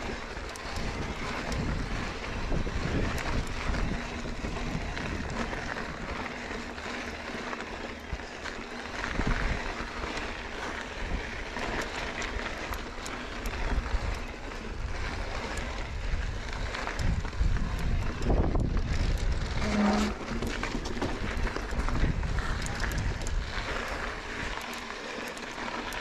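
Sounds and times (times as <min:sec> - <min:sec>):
wind buffeting microphone: 0:00.0 - 0:06.2, 0:13.4 - 0:24.7
bike clicks and rattles: 0:00.0 - 0:26.0
bike tyres rolling on rocky dirt: 0:00.0 - 0:26.0.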